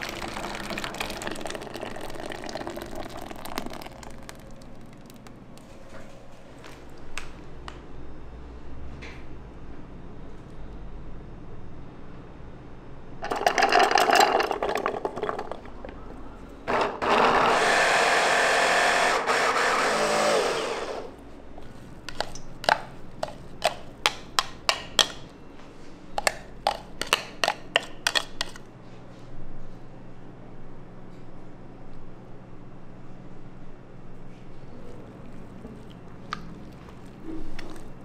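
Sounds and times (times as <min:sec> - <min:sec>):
electric blender running: 0:16.7 - 0:21.2.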